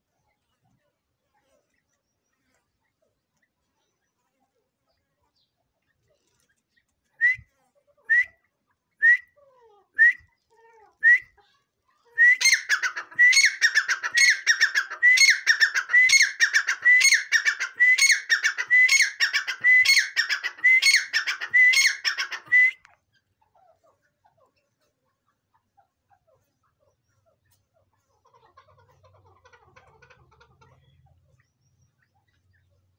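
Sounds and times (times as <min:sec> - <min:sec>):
francolin calling: 0:12.2 - 0:22.8.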